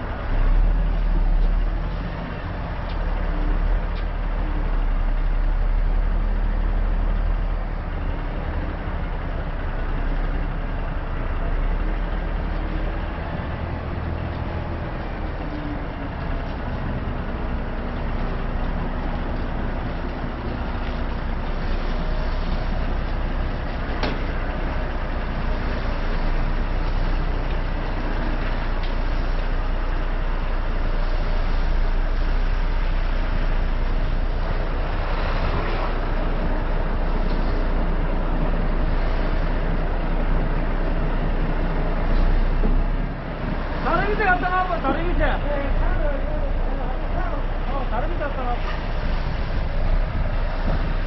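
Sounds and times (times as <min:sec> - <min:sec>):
heavy truck engine running: 0:00.0 - 0:51.0.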